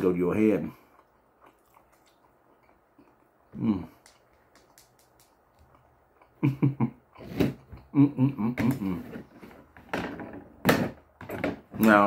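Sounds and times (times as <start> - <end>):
mouth smacks while chewing: 0.9 - 6.4
man humming with closed mouth: 3.5 - 4.0, 7.8 - 9.0.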